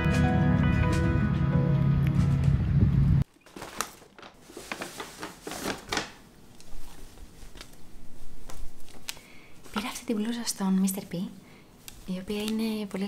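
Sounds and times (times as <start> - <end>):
objects rustling and clicking: 3.3 - 7.8.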